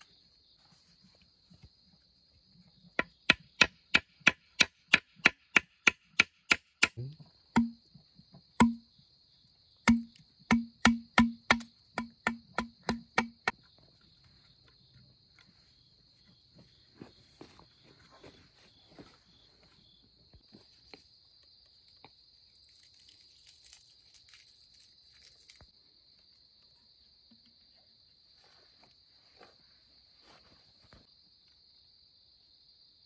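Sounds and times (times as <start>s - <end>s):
crickets droning: 0.0s - 4.7s, 6.9s - 33.0s
hand tool striking bamboo: 3.0s - 7.8s, 8.6s - 8.8s, 9.8s - 13.6s.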